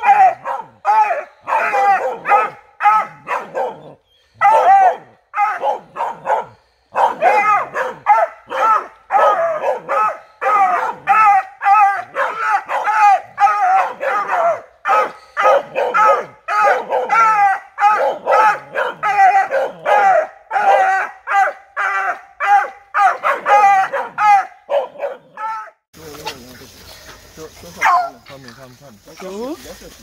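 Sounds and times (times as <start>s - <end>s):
hounds barking and baying: 0.0s - 25.8s, 27.7s - 28.2s.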